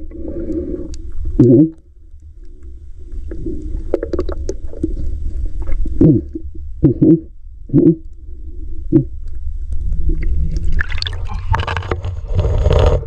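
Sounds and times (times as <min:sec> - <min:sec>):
steady low rumble: 0:00.0 - 0:13.0
water sloshing and gurgling: 0:02.3 - 0:06.8, 0:08.3 - 0:13.0.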